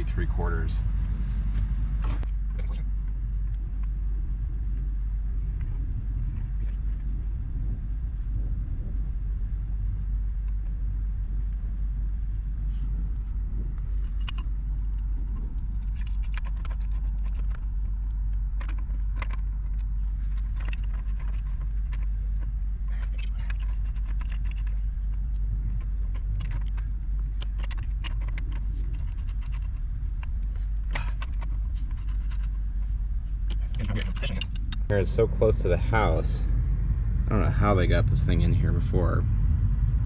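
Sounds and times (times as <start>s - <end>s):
steady low rumble: 0.0s - 40.0s.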